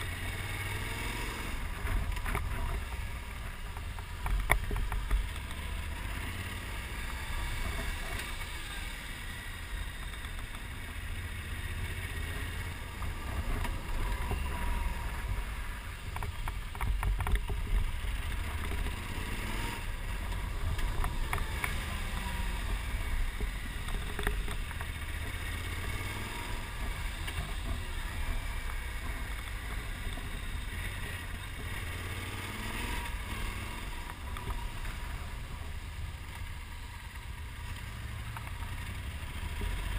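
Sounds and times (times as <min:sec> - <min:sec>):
motorcycle engine: 0:00.0 - 0:39.9.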